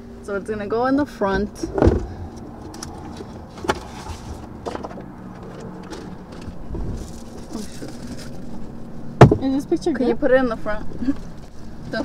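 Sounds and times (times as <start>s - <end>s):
rustling of things handled: 1.4s - 8.8s.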